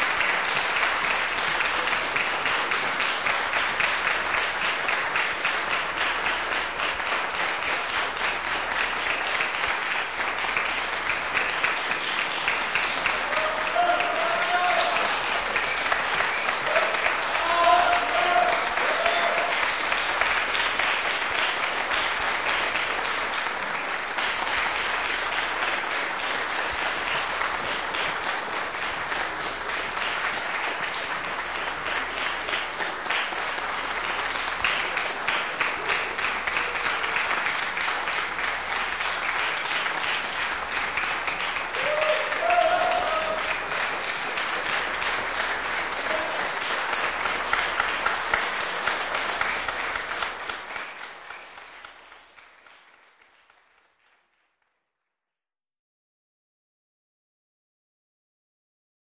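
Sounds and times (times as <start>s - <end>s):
audience applauding: 0.0s - 54.7s.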